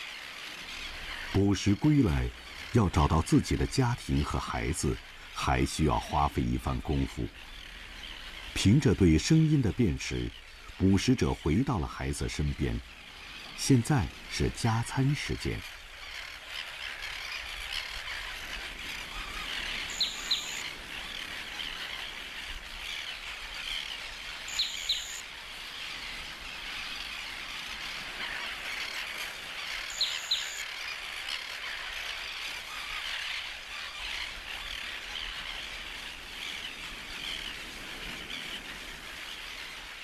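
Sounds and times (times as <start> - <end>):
tern colony calling: 0.9 - 12.4
sharp double bird calls: 19.0 - 20.9, 24.5 - 25.3.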